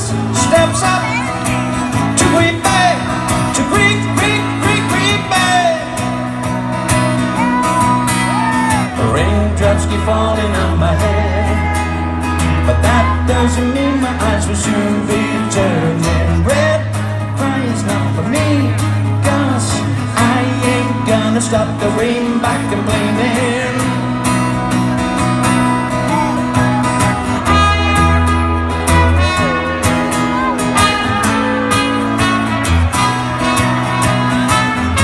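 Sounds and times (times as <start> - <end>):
live band music over a pa: 0.0 - 35.0
strummed acoustic guitar: 0.0 - 35.0
person singing: 7.2 - 24.2
trumpet playing: 27.2 - 35.0.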